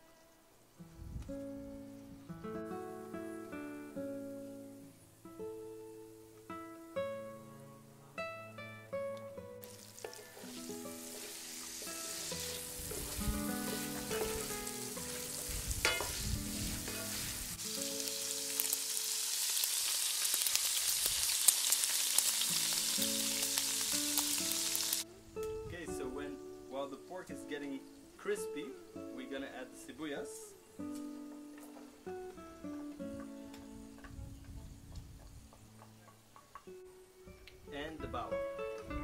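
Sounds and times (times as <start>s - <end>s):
acoustic guitar music: 0.8s - 19.2s, 22.4s - 34.1s, 35.4s - 39.0s
pork sizzling in oil: 9.6s - 25.6s
wooden spatula scraping: 10.0s - 17.7s.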